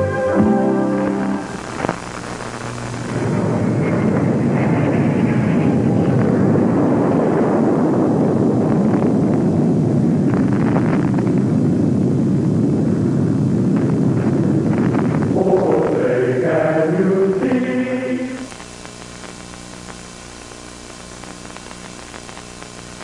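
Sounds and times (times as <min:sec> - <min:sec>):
jet engine roaring: 0:00.0 - 0:07.7.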